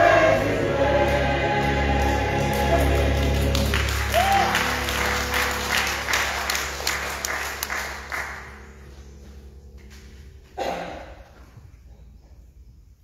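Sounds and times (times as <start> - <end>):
choir singing: 0.0 - 6.8
congregation applauding: 1.9 - 9.0.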